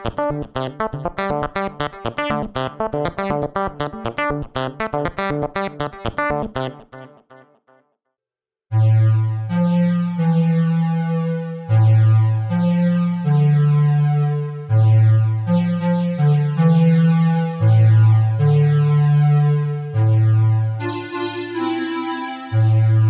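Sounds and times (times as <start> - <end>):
synthesizer arpeggio: 0.0 - 7.5, 8.7 - 23.0
synth bass line: 8.7 - 23.0
synthesizer pad chords: 8.7 - 23.0.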